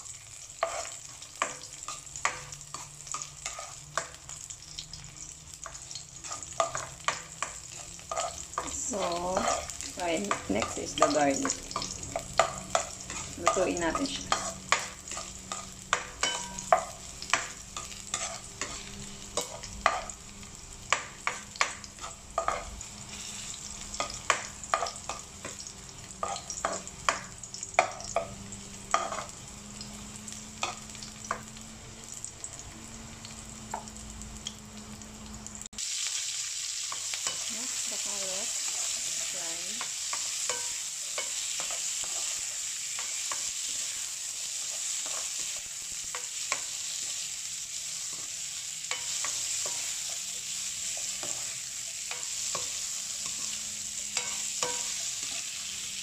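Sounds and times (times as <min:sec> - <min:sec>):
carrots sizzling in a wok: 0:00.0 - 0:56.0
garlic frying in oil: 0:00.0 - 0:56.0
spoon scraping and knocking a wok: 0:00.6 - 0:04.3, 0:05.6 - 0:20.2, 0:20.8 - 0:29.4, 0:38.6 - 0:47.3, 0:48.0 - 0:55.5.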